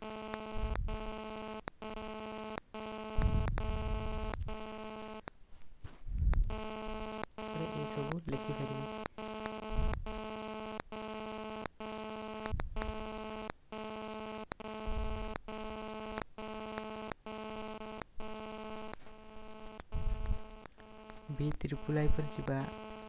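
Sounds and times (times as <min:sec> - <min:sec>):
electrical buzz: 0:00.0 - 0:23.0
dull low thumps: 0:03.2 - 0:04.6, 0:06.0 - 0:06.6, 0:09.7 - 0:10.2.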